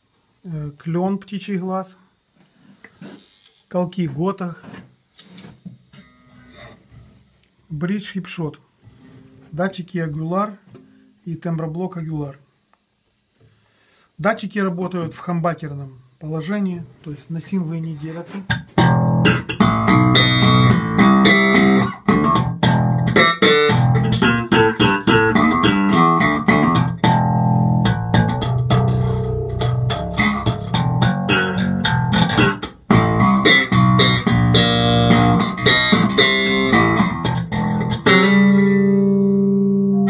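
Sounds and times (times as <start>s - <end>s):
electric bass guitar playing: 18.5s - 40.0s.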